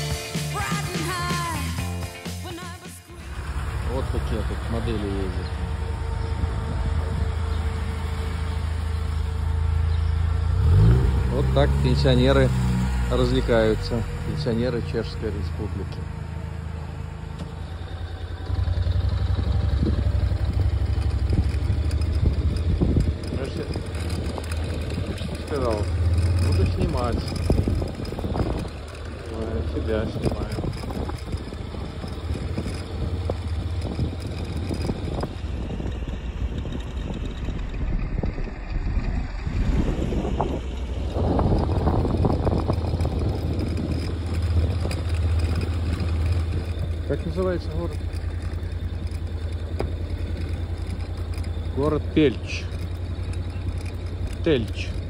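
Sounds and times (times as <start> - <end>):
vehicle engine idling: 0.0 - 55.0
wind noise: 5.4 - 8.9, 18.5 - 48.1.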